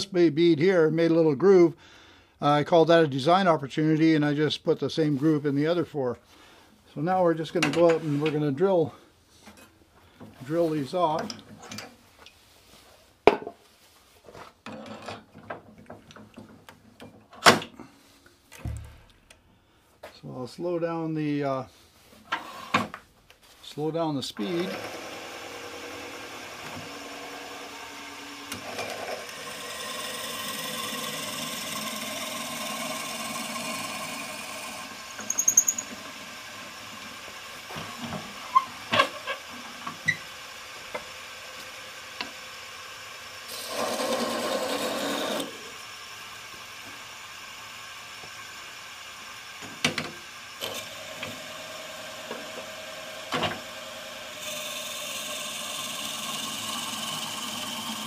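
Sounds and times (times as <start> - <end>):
drill bit boring into wood: 24.4 - 37.7, 38.3 - 47.1, 50.6 - 58.0
wood lathe running: 24.4 - 58.0.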